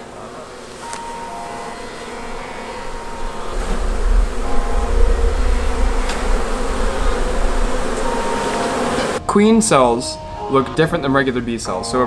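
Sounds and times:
bees buzzing: 0.0 - 9.2
low rumble: 2.8 - 9.2.

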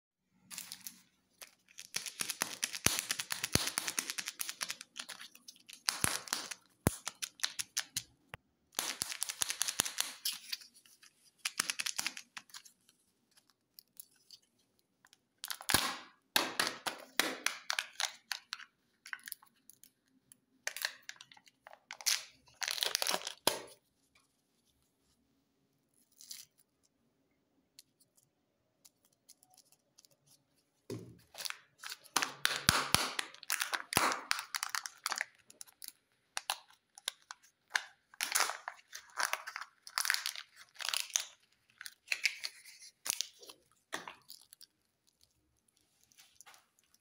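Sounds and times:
plastic and foil wrappers crinkling: 0.5 - 8.1, 17.6 - 23.8, 31.2 - 47.0.

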